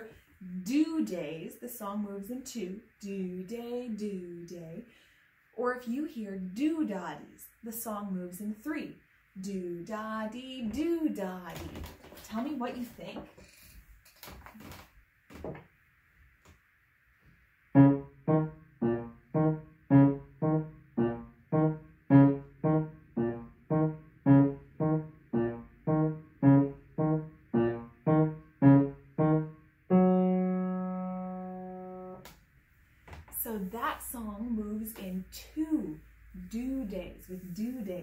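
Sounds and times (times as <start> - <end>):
grand piano piece: 17.8 - 32.2.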